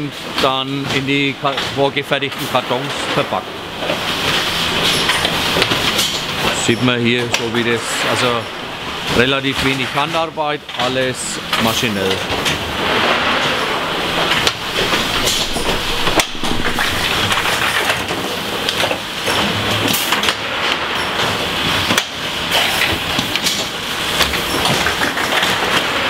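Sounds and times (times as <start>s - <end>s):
machine clattering and clicking: 9.6s - 26.0s.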